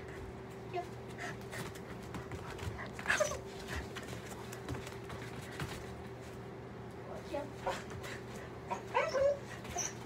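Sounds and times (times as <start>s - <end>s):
low room hum: 0.0s - 10.0s
dog whining: 3.0s - 3.5s, 8.7s - 10.0s.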